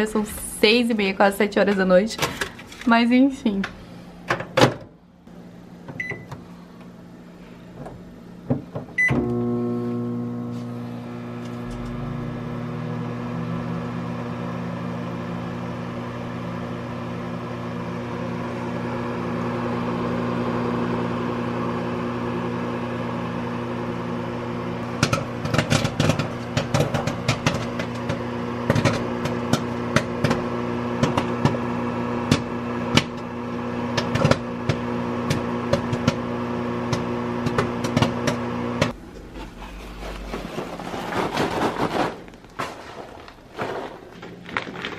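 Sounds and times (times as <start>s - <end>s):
microwave humming: 0.0s - 44.9s
popcorn popping: 24.8s - 44.9s.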